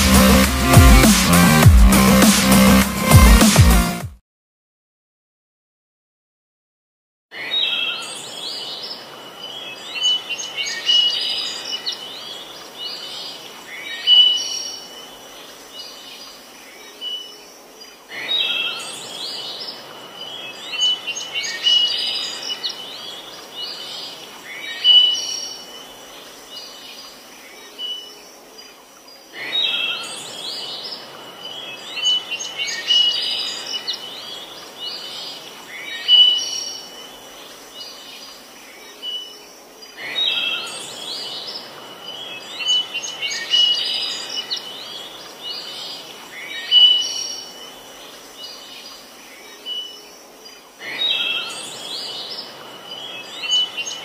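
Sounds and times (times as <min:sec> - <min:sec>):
steady background hiss: 0:07.4 - 0:54.0
birds chirping and calling: 0:29.4 - 0:54.0.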